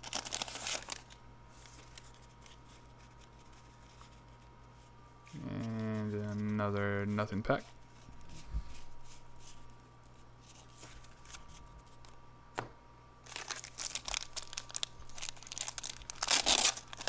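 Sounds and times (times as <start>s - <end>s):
wrapper crinkling and tearing: 0.0s - 4.1s, 13.2s - 17.0s
card handling: 0.0s - 4.3s, 10.4s - 12.2s.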